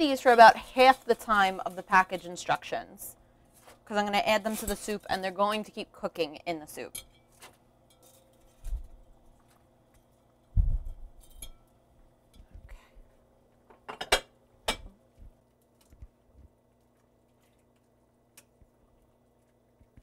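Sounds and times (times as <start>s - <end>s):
faint steady hum: 0.0s - 20.0s
pots clinking: 6.8s - 10.0s, 10.9s - 12.5s.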